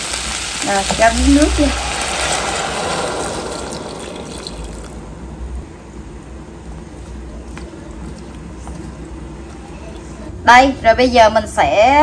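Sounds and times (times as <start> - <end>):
water poured into hot pot: 0.0 - 5.5
oil sizzling and crackling: 0.0 - 6.4.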